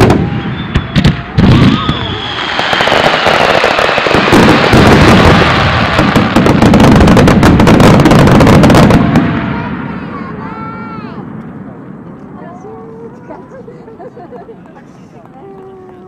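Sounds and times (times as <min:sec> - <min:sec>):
firework bursts and crackle: 0:00.0 - 0:11.4
high whistling tone: 0:01.7 - 0:02.8.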